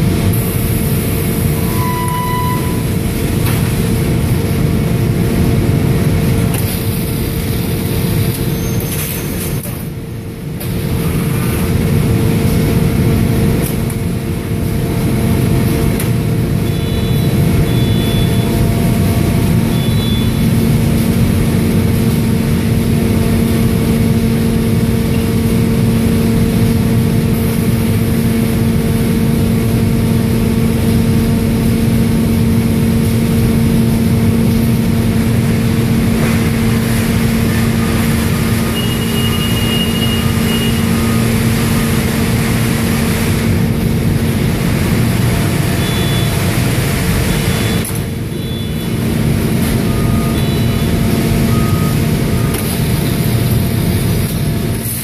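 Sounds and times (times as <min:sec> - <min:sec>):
electric hum: 0:00.0 - 0:08.7, 0:10.0 - 0:55.0
short high beeps: 0:01.6 - 0:02.8, 0:16.7 - 0:18.4, 0:19.7 - 0:20.4.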